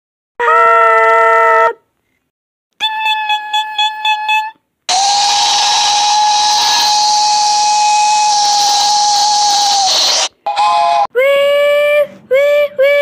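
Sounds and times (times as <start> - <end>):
steam hissing: 4.9 - 10.4
steam locomotive whistle: 4.9 - 11.0.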